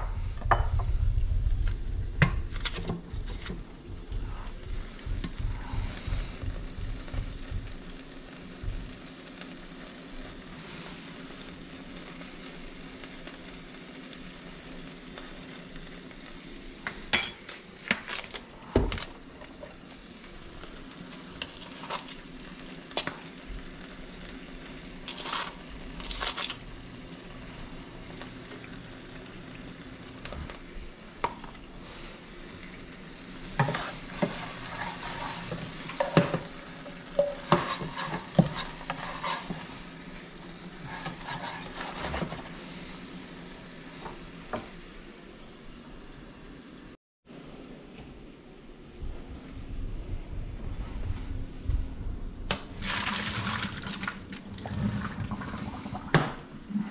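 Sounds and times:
oil sizzling in a frying pan: 0:00.5 - 0:18.4, 0:19.0 - 0:47.0
utensil clicking and scraping pan: 0:33.6 - 0:36.5, 0:37.2 - 0:39.8, 0:40.8 - 0:42.5.

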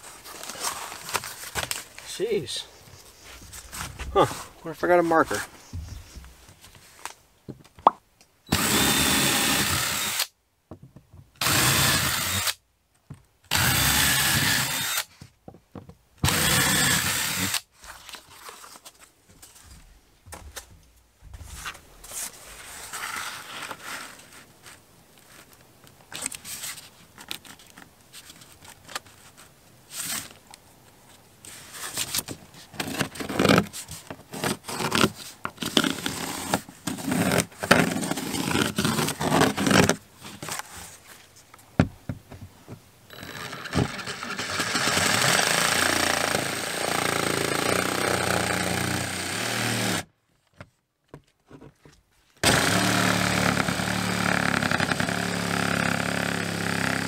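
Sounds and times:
knocks and scrapes: 0:00.0 - 0:07.9, 0:17.8 - 0:30.4
cordless drill drilling into wall: 0:08.5 - 0:10.3, 0:11.4 - 0:12.6, 0:13.5 - 0:15.1, 0:16.2 - 0:17.7, 0:43.1 - 0:50.1, 0:52.4 - 0:57.0.

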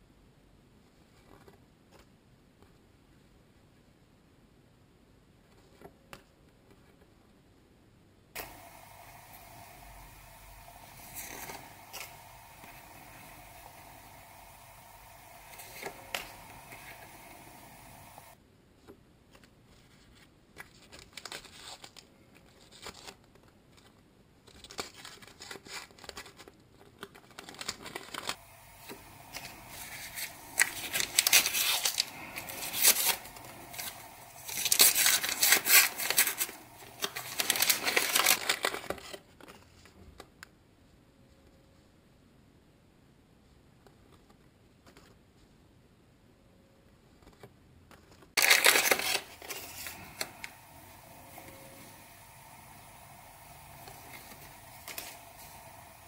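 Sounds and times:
wrapper tearing and crinkling: 0:27.0 - 0:39.3, 0:48.4 - 0:50.6.

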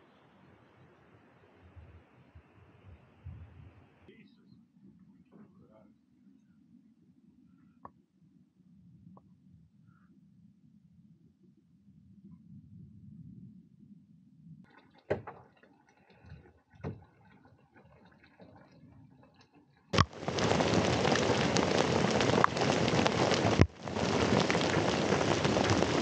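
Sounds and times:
heavy hail pelting: 0:20.0 - 0:26.0.

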